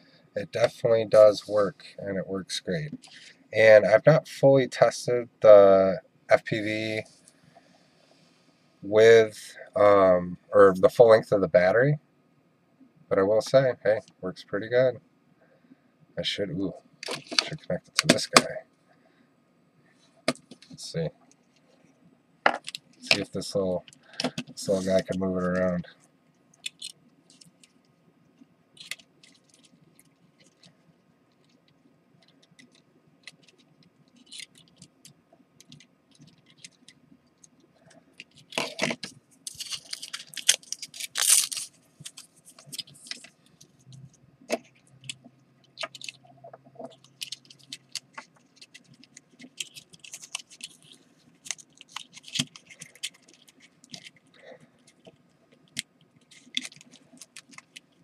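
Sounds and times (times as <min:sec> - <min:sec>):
crackling and scraping: 0:19.9 - 0:58.0
plastic parts clicking and rustling: 0:22.5 - 0:25.7, 0:26.6 - 0:27.8, 0:28.8 - 0:58.0.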